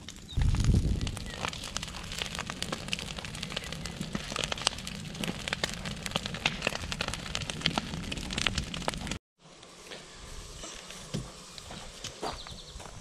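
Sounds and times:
bonfire crackling and popping: 0.0s - 9.2s.

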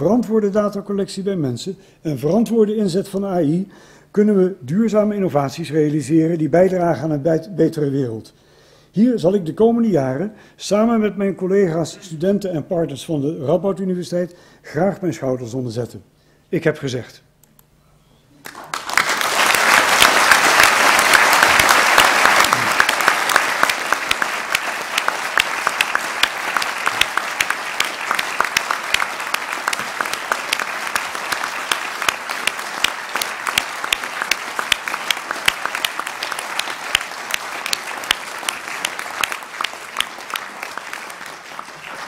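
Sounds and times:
large audience applauding: 18.4s - 42.0s.

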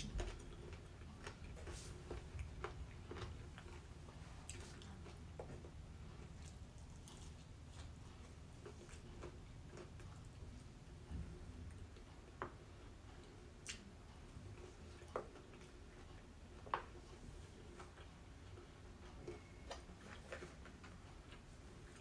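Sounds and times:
chewing and biting food: 0.0s - 10.7s.

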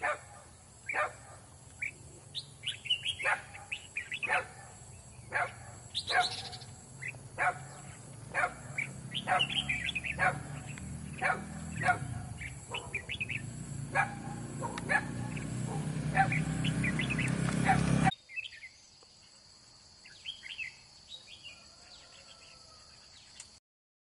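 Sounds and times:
birds chirping sharply: 0.0s - 18.8s.

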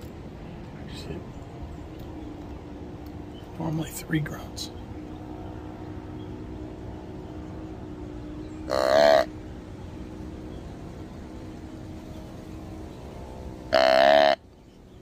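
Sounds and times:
deer grunt call: 8.7s - 9.3s, 13.7s - 14.4s.

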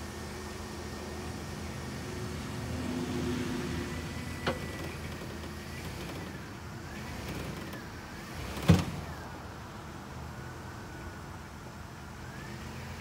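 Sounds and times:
engine running: 0.0s - 13.0s
rope creaking squeal: 3.8s - 9.3s.

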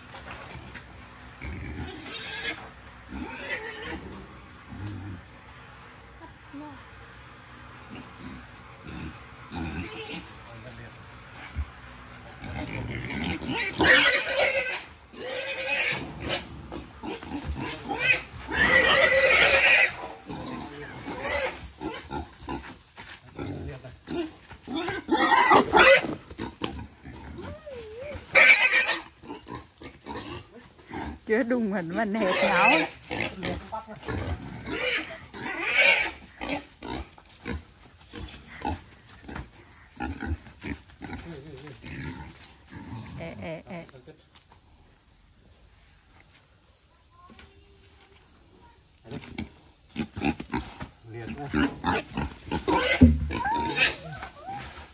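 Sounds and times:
wild boar squealing: 12.4s - 22.6s, 24.1s - 31.2s, 32.0s - 33.6s, 34.2s - 37.1s, 51.5s - 54.9s.

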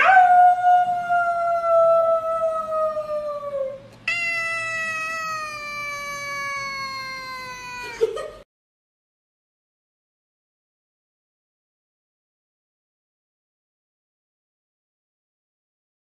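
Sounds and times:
cat meowing: 4.1s - 8.1s.

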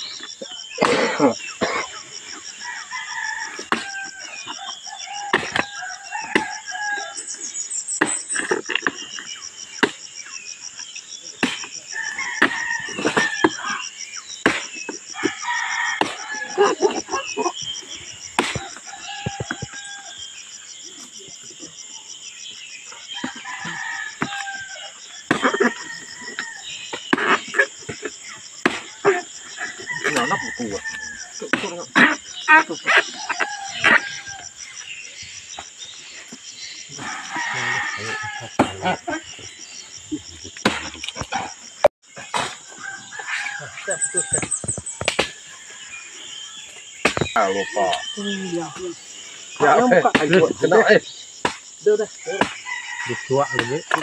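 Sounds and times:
roosters crowing: 0.0s - 7.6s, 11.4s - 22.2s, 22.9s - 54.0s
high insect drone: 0.0s - 54.0s
machete chopping wood: 18.4s - 18.7s, 47.0s - 47.4s, 51.4s - 51.7s, 52.3s - 52.6s.

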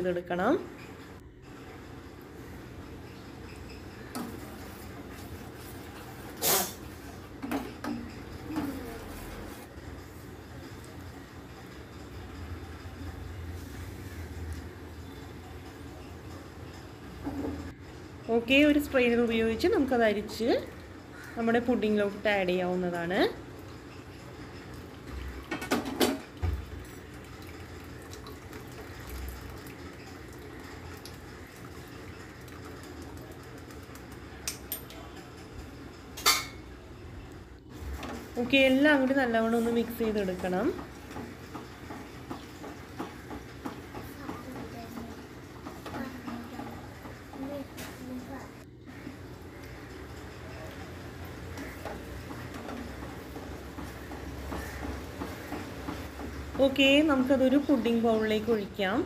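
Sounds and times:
liquid trickling through strainer: 26.2s - 34.0s.

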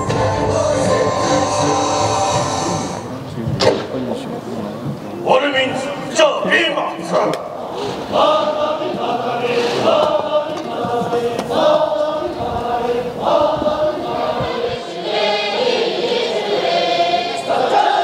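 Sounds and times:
large choir singing: 0.0s - 3.1s, 7.6s - 18.0s.

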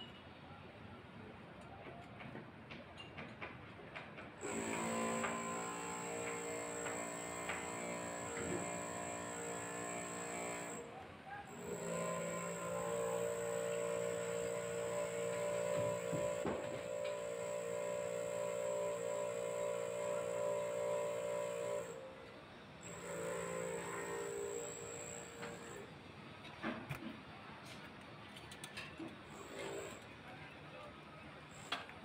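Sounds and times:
electric hoist motor humming: 4.4s - 10.9s, 11.5s - 26.0s.

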